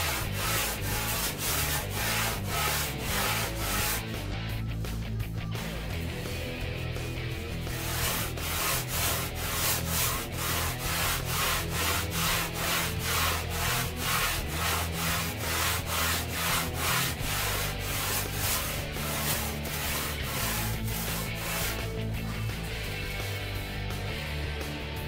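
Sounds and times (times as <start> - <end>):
sandpaper scratching on board: 0.0 - 4.2, 7.7 - 22.7.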